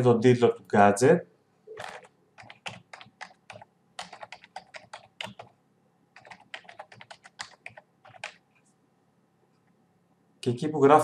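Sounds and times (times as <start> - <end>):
typing on keyboard: 1.8 - 5.6, 6.2 - 8.4.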